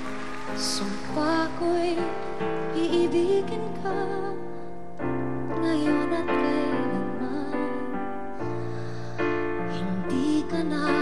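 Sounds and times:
piano chords: 0.0s - 11.0s
woman singing a slow ballad: 0.5s - 4.7s, 5.5s - 8.1s, 9.6s - 11.0s.

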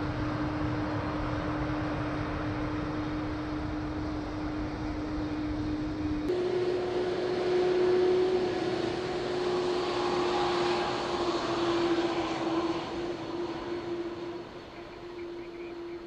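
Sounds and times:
jet engine whine and rush: 0.0s - 16.0s.

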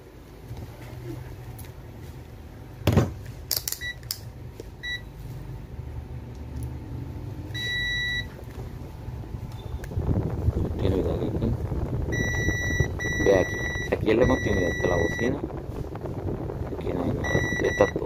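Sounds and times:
multimeter continuity beeps: 4.8s - 5.1s, 7.6s - 8.3s, 12.1s - 15.4s, 17.2s - 18.0s.

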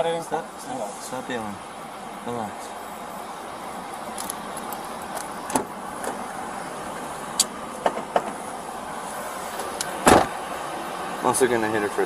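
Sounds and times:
rumble of vehicles: 0.0s - 12.0s
sharp clicks and knocks: 7.4s - 8.4s.

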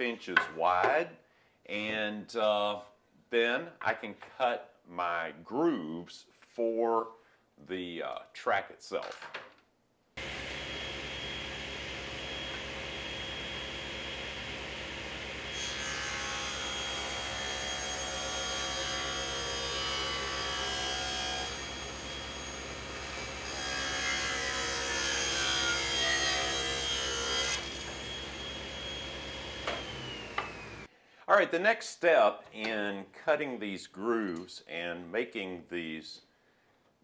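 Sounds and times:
table saw ripping boards: 15.3s - 30.8s.

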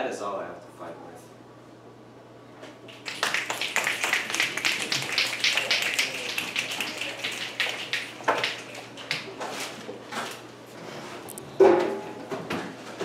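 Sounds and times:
audience applauding: 2.9s - 9.3s.

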